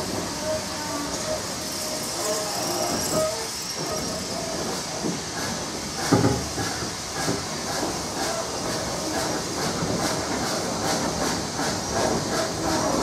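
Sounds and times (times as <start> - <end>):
train rolling noise: 0.0 - 13.0.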